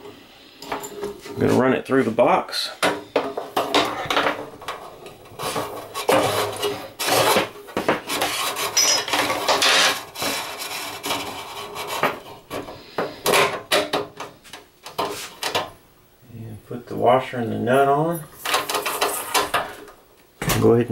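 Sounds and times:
cable scraping against metal panel: 3.6s - 13.4s, 18.4s - 19.9s.

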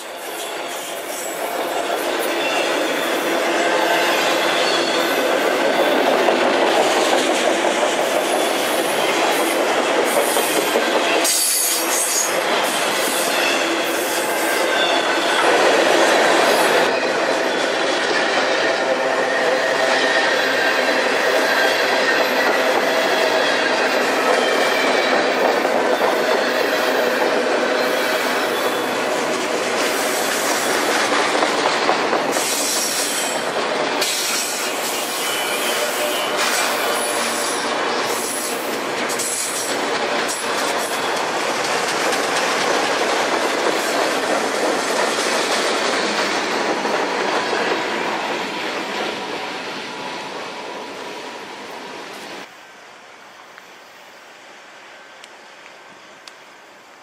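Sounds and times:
freight cars rolling on rails: 0.0s - 52.5s
wheels squealing: 2.2s - 6.3s.

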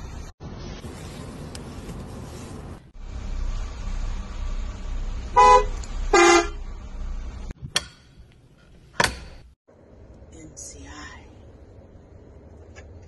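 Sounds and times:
bus horn honks: 5.3s - 6.6s
engine idling rumble: 9.7s - 13.0s.

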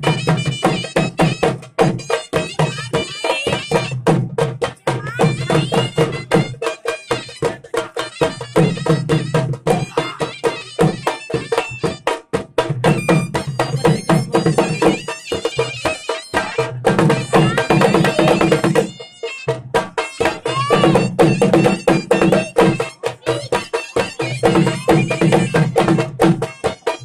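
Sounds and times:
drum beaten in fast rhythm: 0.0s - 27.0s
shrill double-reed pipe melody: 12.9s - 16.6s, 17.2s - 27.0s.

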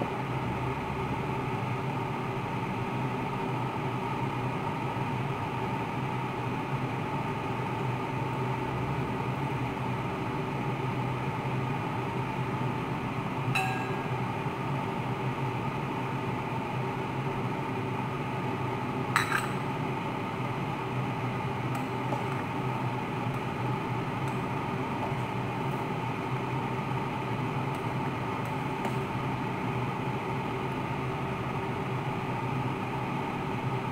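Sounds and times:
kitchen hiss and hum: 0.0s - 33.9s
metal ladle clinking pot: 13.6s - 14.2s, 19.2s - 19.6s.

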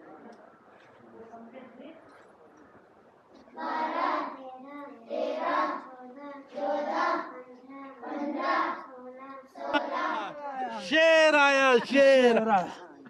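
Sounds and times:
children chanting in chorus: 3.6s - 10.4s.

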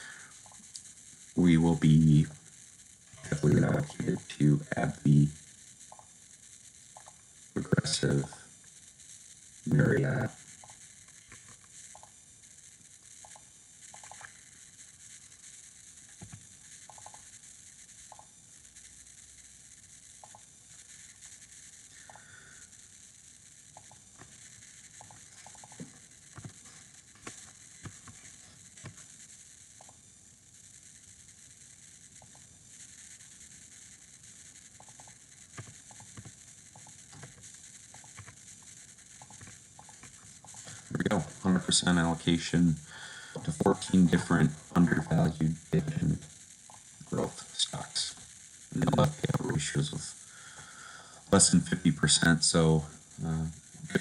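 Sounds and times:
steady hiss: 0.0s - 54.0s
mouse clicks: 7.0s - 7.2s, 10.6s - 12.1s, 13.2s - 14.3s, 16.2s - 17.2s, 20.2s - 20.4s, 23.7s - 24.0s, 34.8s - 37.3s, 37.9s - 38.4s.

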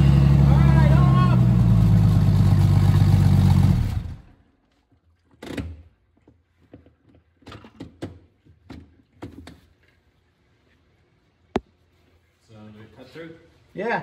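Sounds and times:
engine cutting off: 0.0s - 4.3s.

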